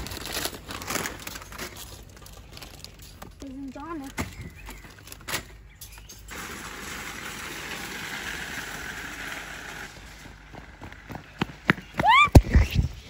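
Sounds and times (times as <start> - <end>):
metal trolleys rattling over paving: 5.0 - 10.8.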